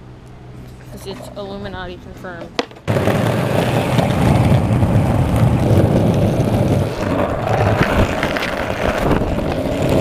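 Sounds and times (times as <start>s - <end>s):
skateboard wheels rumbling on asphalt: 2.4s - 10.0s
wheels clicking over cracks: 2.5s - 10.0s.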